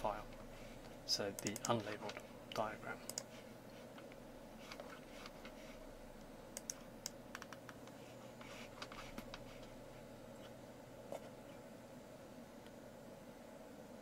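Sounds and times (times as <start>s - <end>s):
low steady hum: 0.0s - 14.0s
keyboard and mouse clicks: 1.4s - 3.3s, 6.6s - 8.0s.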